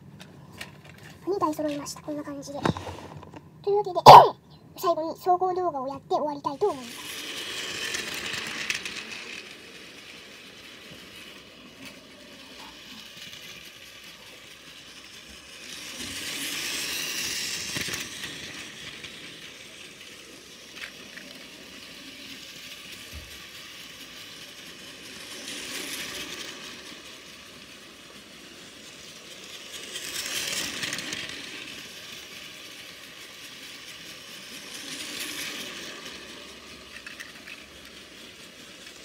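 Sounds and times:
toy train motor whirring: 0:00.5 - 0:39.0
toy train wheels rattling: 0:00.5 - 0:39.0.

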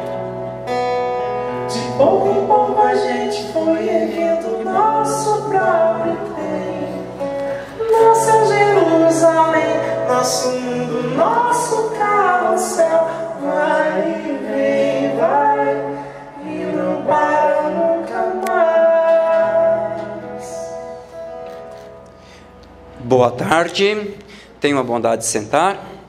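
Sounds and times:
person singing: 0:01.5 - 0:20.8.

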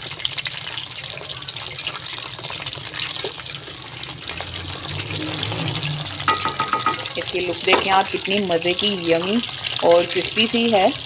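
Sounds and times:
oil sizzling and crackling: 0:00.0 - 0:11.0.

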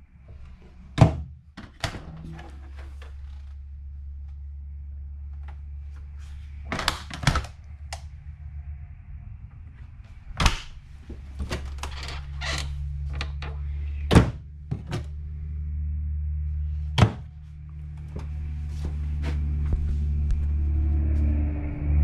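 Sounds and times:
low hum: 0:00.0 - 0:22.0
knocks and thunks: 0:14.1 - 0:15.2, 0:17.0 - 0:17.4.

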